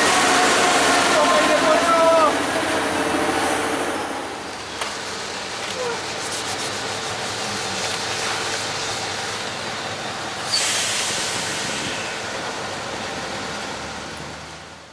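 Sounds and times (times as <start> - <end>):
crane engine rumbling: 0.0 - 14.8
compressed air hiss: 10.5 - 12.2.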